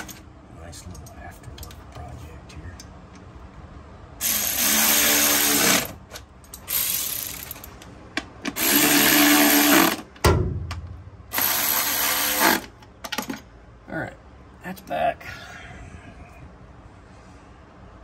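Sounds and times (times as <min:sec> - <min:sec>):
cordless power ratchet spinning: 0:04.2 - 0:06.0, 0:06.7 - 0:07.6, 0:08.6 - 0:10.0, 0:11.3 - 0:12.7.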